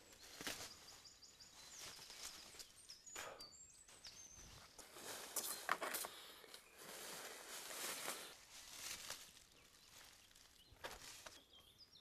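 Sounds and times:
rope rustling and handling: 4.8 - 11.5
soft scrapes: 6.8 - 9.0.

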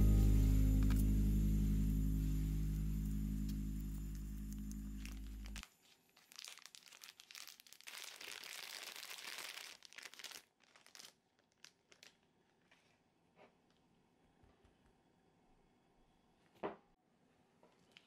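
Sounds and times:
plastic bag crinkling: 4.6 - 12.9.

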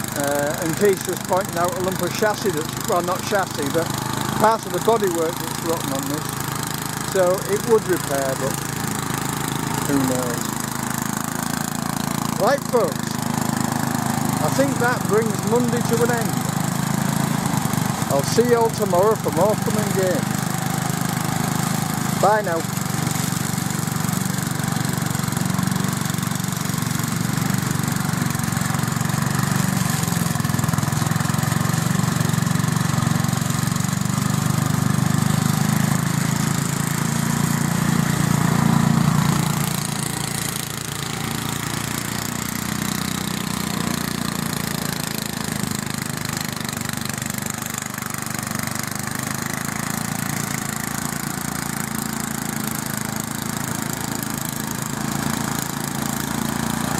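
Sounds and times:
ride-on mower engine running: 0.0 - 56.9.

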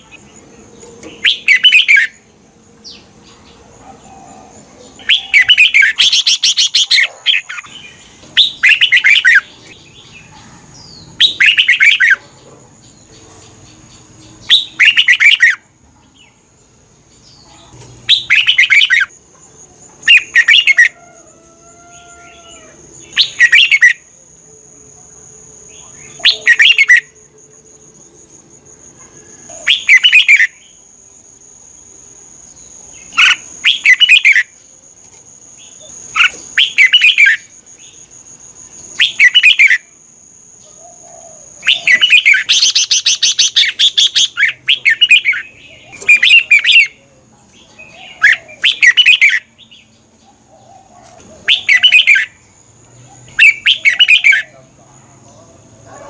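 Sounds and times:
bird singing whistled phrases: 39.0 - 39.8, 48.2 - 49.5, 51.5 - 52.3.

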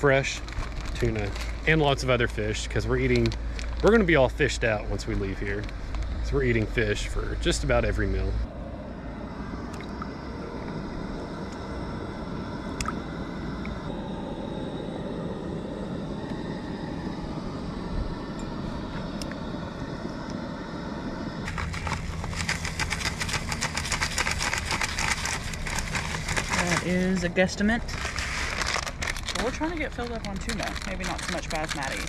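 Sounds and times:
low rumble: 0.0 - 32.0
water boiling and crackling: 0.0 - 32.0.

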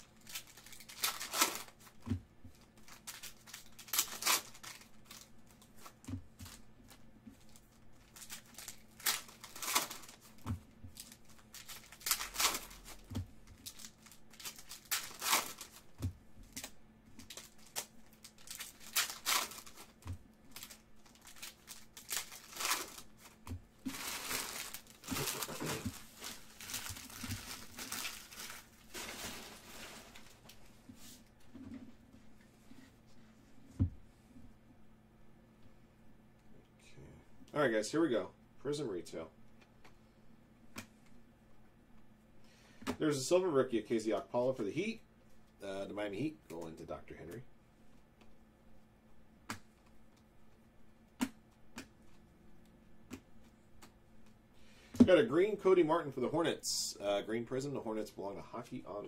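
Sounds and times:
plastic wrappers tearing and crinkling: 0.0 - 30.6.

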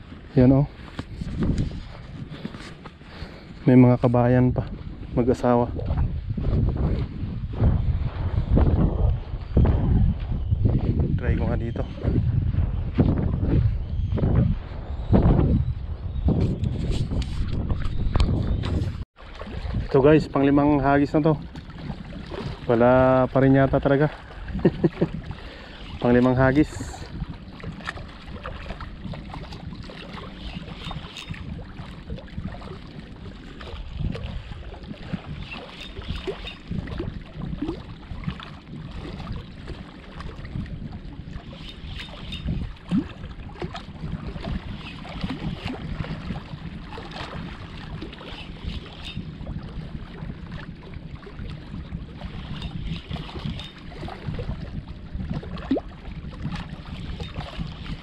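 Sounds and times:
wind rumble on microphone: 0.0 - 58.0
water lapping at rocks: 16.8 - 58.0.

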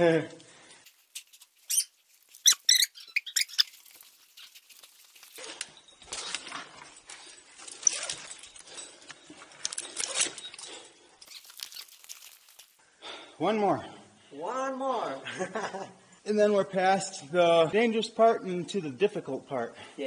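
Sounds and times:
rope and gear scraping: 0.8 - 12.8
high squeaks: 0.9 - 6.5, 11.2 - 12.7.

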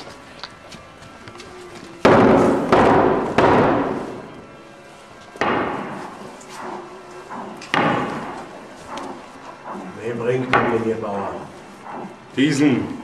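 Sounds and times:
heavy thuds with ringing: 2.0 - 4.2, 5.4 - 6.0.

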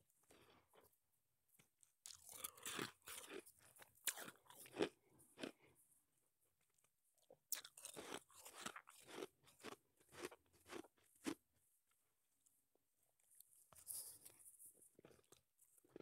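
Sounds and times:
shaved ice being chewed: 2.1 - 5.6, 7.3 - 11.4.

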